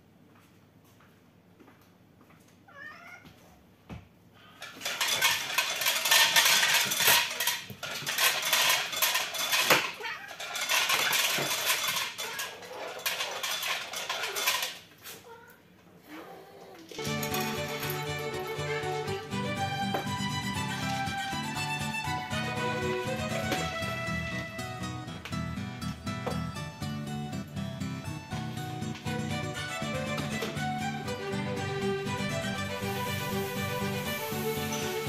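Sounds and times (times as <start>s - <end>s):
cat meowing: 2.7s - 3.3s
dog eating kibble from bowl: 4.8s - 14.8s.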